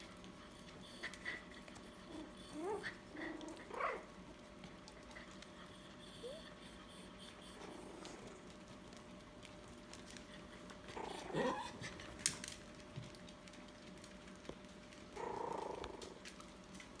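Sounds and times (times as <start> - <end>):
dog whining: 0.4 - 4.2, 5.0 - 8.5, 10.6 - 12.1.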